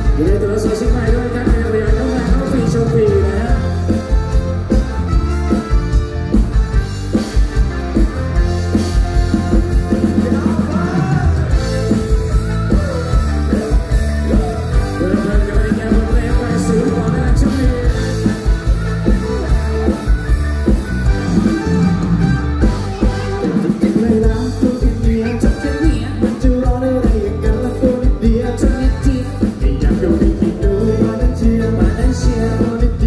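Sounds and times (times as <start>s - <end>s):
man singing into microphone: 0.0s - 3.8s, 9.9s - 12.2s, 13.4s - 18.6s, 23.1s - 33.0s
amplified rock band music: 0.0s - 33.0s.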